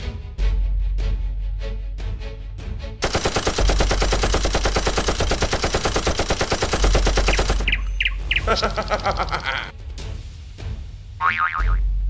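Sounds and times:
machine-gun fire: 3.0 - 9.4.

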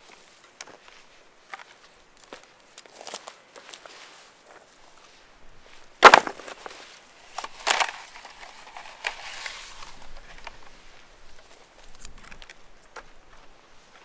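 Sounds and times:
wood cracking: 6.0 - 6.8, 7.4 - 10.7.

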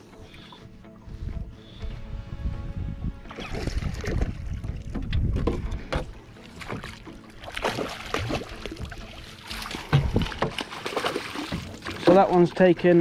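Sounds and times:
water splashing and dripping: 3.3 - 13.0.

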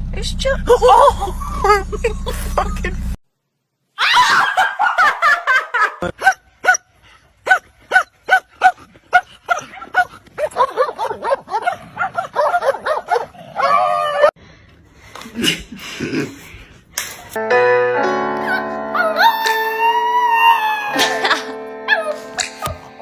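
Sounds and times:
dog barking and yelping: 4.1 - 14.4, 21.9 - 22.4.

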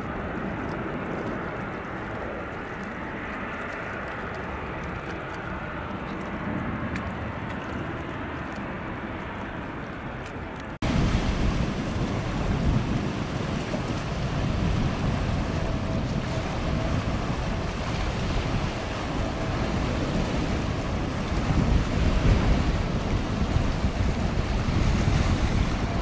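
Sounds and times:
distant jet airliner: 0.0 - 26.0
wind rumbling on microphone: 0.0 - 26.0
waves washing on rocky shore: 10.8 - 26.0.

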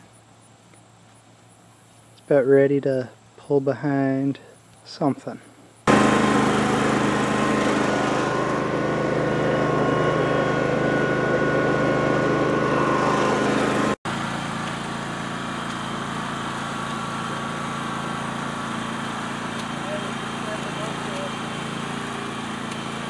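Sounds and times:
lawn tractor engine running: 5.9 - 23.0.

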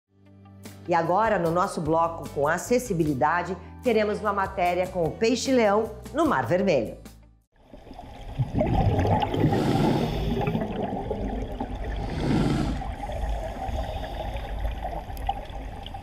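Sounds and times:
underwater low rumble: 7.7 - 16.0
exhaled breath bubbles: 8.2 - 16.0.

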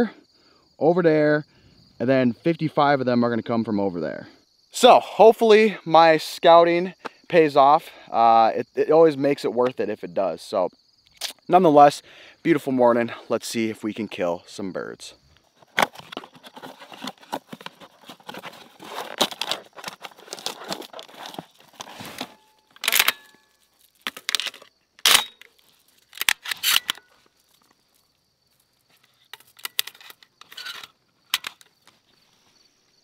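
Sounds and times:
cardboard box tearing and rustling: 15.8 - 22.4
shells clicking into shotgun: 22.8 - 23.4.

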